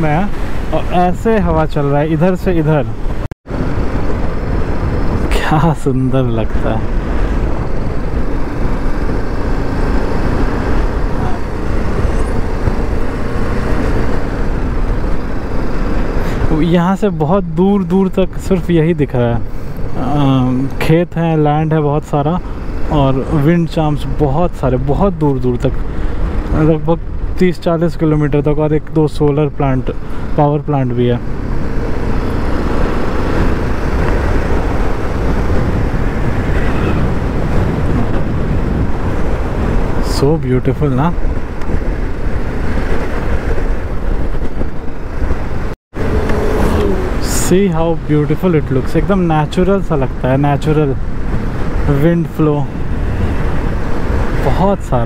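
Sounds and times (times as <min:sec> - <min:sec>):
wind buffeting microphone: 0:00.0 - 0:16.7, 0:31.1 - 0:55.0.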